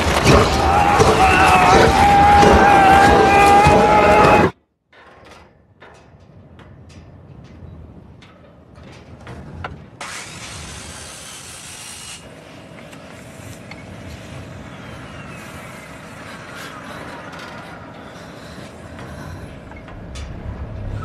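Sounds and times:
mechanical drone with falling whine: 9.7 - 21.0
loud hiss: 10.0 - 12.3.

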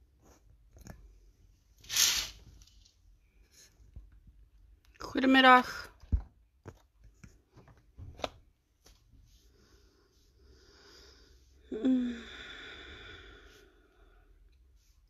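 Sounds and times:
person sighing: 11.6 - 13.6.

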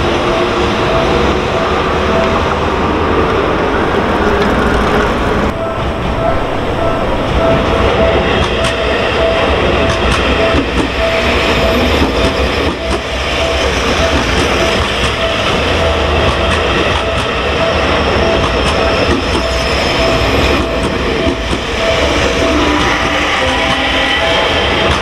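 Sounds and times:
level-crossing bell ringing: 0.0 - 3.7, 5.5 - 24.9
train wheels clacking over rail joints: 7.3 - 25.0.

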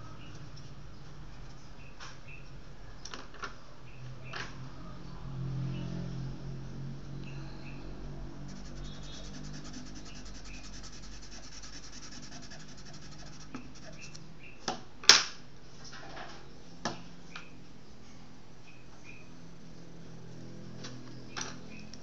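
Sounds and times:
charcoal scratching on paper: 8.5 - 14.2.

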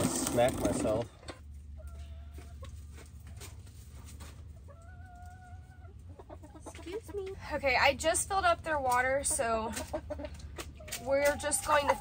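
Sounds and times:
hens calling: 0.6 - 3.2, 4.4 - 12.0
faint hen clucks: 1.1 - 3.1, 4.4 - 7.5, 9.1 - 12.0.

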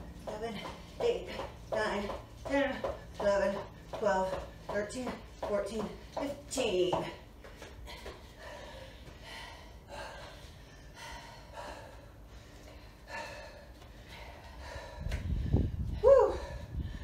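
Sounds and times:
women panting: 7.0 - 17.0.

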